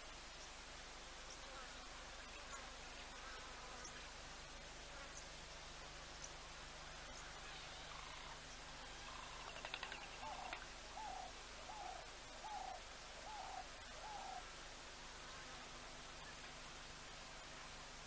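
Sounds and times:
bird rattle call: 9.4 - 10.6.

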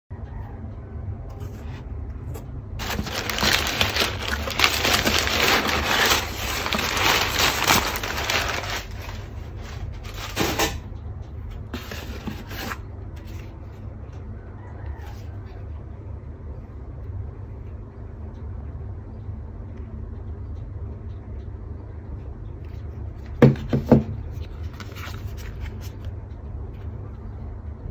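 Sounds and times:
steady low hum: 0.1 - 27.9
packing paper crinkling: 2.8 - 10.8.

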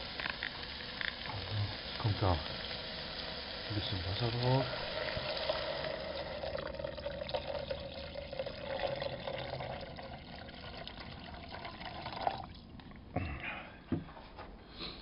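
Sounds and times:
water pouring into metal tin: 0.0 - 12.9.

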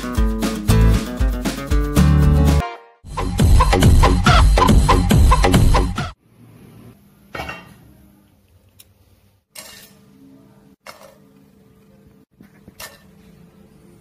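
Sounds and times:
music: 0.0 - 6.2.

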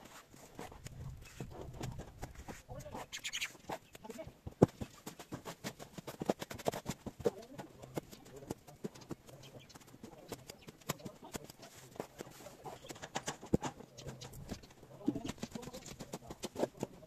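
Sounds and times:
bird calling: 3.0 - 4.0.

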